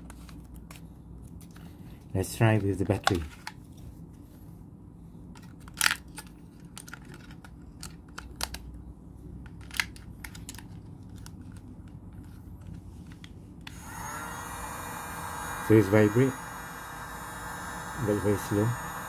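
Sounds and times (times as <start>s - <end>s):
plastic clicks and rattles: 5.4s - 8.8s, 9.4s - 13.3s.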